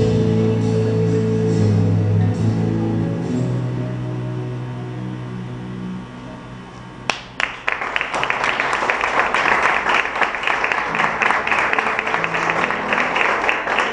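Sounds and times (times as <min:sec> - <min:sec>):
audience applause: 0:07.1 - 0:13.9.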